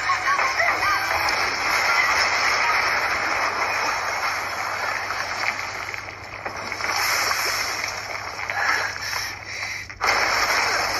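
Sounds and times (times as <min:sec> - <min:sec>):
faint debris cracks: 0:00.1 - 0:10.9
rushing splashing noise: 0:01.0 - 0:09.4.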